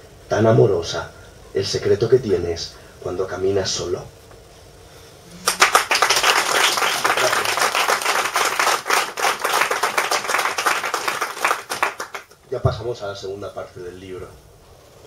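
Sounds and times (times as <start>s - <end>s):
audience applauding: 5.3s - 12.3s.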